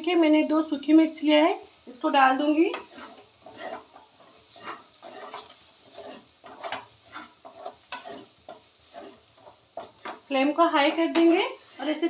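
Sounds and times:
onions sizzling: 0.0s - 12.0s
spatula scraping pan: 1.9s - 12.0s.

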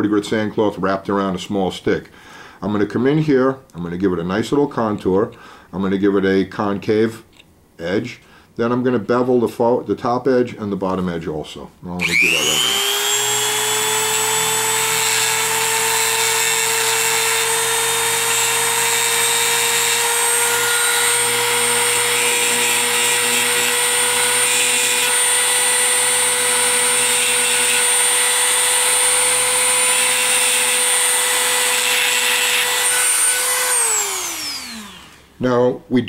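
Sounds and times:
rotary tool grinding steel: 12.0s - 35.3s.

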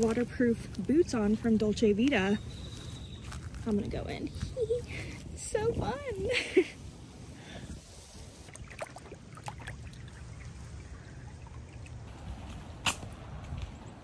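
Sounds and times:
low outdoor rumble: 0.0s - 14.0s
water splashes: 8.1s - 12.7s.

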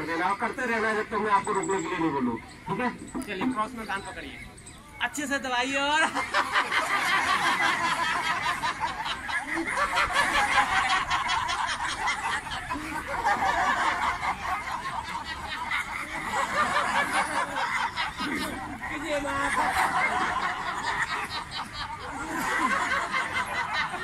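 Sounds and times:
crowd laughing together: 0.0s - 4.2s, 5.8s - 24.0s.

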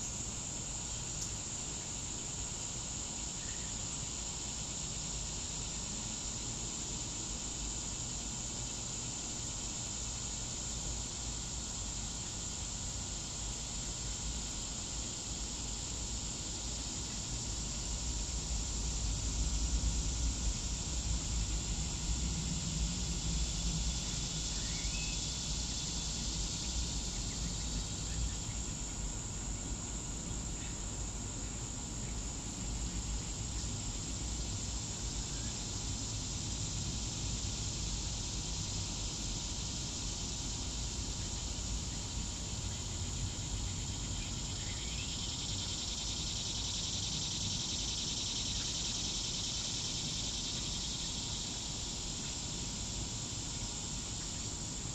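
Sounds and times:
high-pitched insect chorus: 0.0s - 54.9s
low steady rumble: 17.6s - 29.3s.

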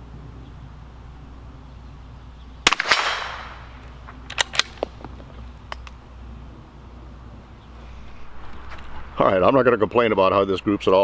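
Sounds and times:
rifle shot with echo: 2.6s - 3.8s
rifle bolt clicks: 4.3s - 4.9s.

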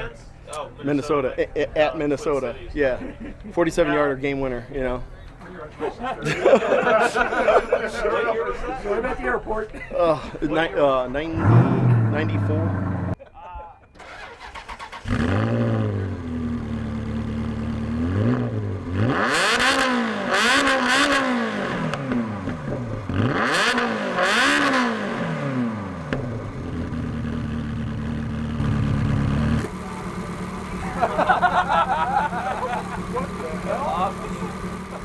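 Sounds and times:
car engine revving: 11.2s - 13.2s, 14.0s - 35.0s
car engine idling: 11.3s - 13.2s, 16.1s - 19.0s, 25.4s - 35.0s.

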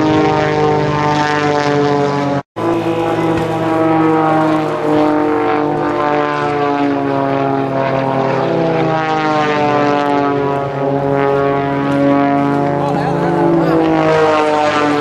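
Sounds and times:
propeller plane engine droning: 0.0s - 15.0s.

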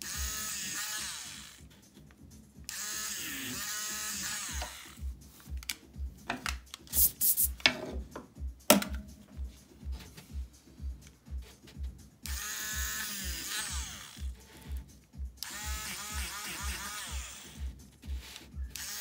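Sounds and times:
electric eraser whirring: 0.0s - 1.7s, 2.7s - 5.1s, 12.2s - 14.8s, 15.4s - 19.0s
background music with low beat: 0.0s - 19.0s.

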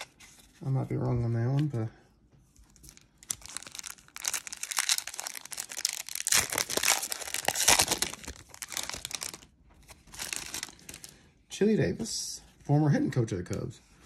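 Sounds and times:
wrapper tearing and crinkling: 2.8s - 11.1s.

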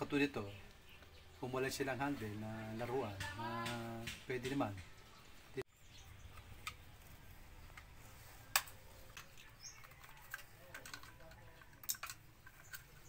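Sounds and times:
plastic toy clicks and knocks: 8.6s - 13.0s.

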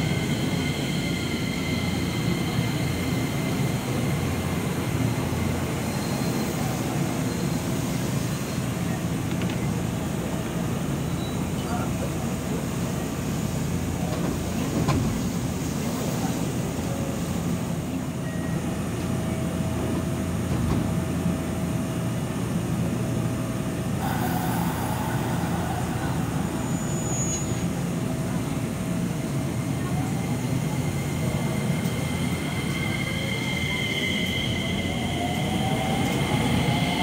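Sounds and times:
train equipment low hum: 17.9s - 37.0s
hiss of air: 24.0s - 27.6s.

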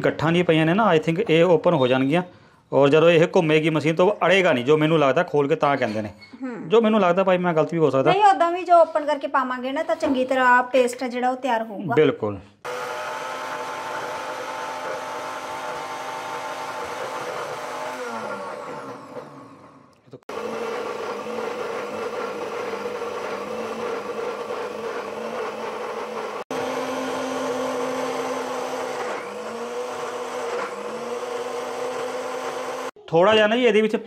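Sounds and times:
mixer grinder motor running: 12.6s - 33.0s.

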